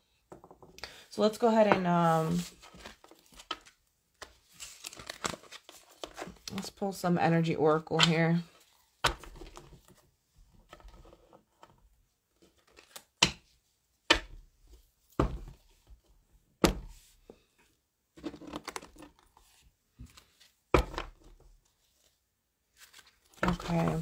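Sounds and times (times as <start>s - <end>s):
cards rustling: 2.1s - 6.8s, 22.7s - 24.0s.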